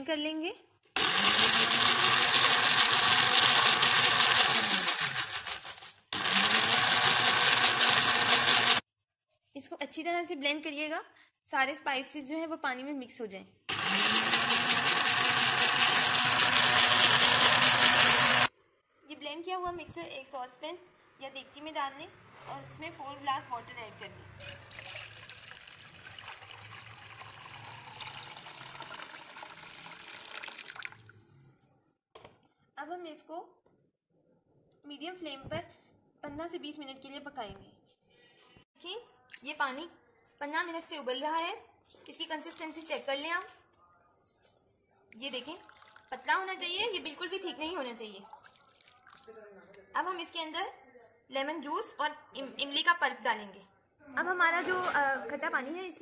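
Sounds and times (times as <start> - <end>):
electric blender running: 1.0 - 8.8, 13.7 - 18.5
water pouring into saucepan: 24.4 - 31.3, 45.6 - 46.2, 48.2 - 49.4.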